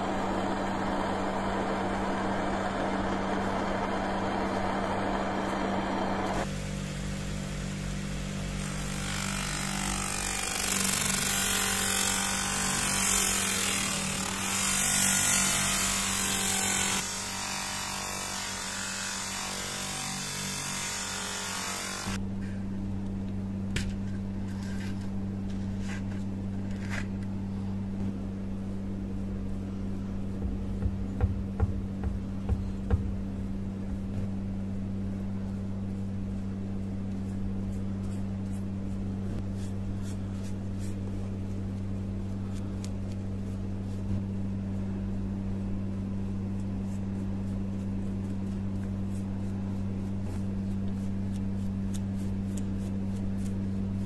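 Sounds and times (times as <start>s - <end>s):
low electrical hum: 0.0s - 54.0s
scratchy brush strokes: 28.6s - 44.1s
soft knocks: 30.4s - 34.3s.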